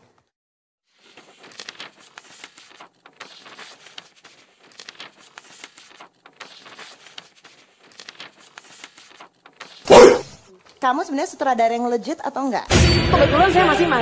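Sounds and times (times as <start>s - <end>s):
paper rustling and crinkling: 0.9s - 9.9s.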